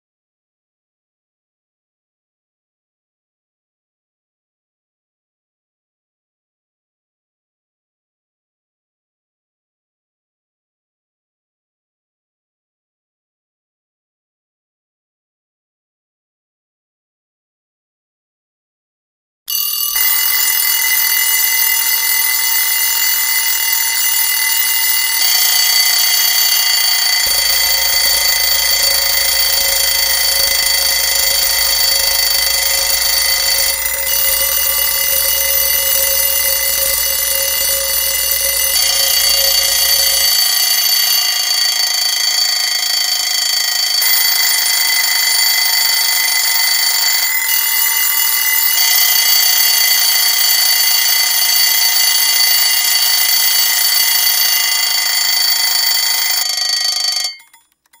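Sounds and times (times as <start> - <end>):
alarm clocks ringing: 19.5 - 58.0.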